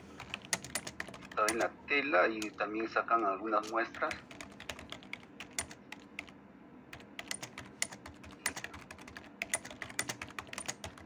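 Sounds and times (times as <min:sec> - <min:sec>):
keyboard key clicks: 0:00.6 - 0:01.7.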